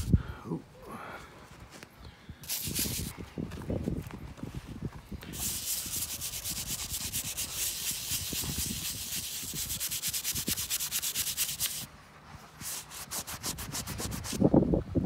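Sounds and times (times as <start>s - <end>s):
wire brush scrubbing tile: 5.3s - 11.9s.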